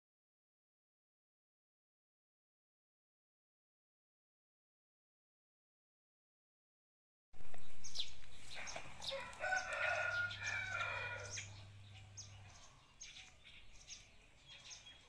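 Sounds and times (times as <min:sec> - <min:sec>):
rooster crowing: 0:08.9 - 0:11.7.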